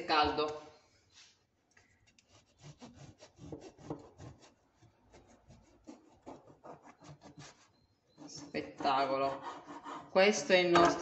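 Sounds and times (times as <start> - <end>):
bread knife sawing through crust: 2.3 - 10.3.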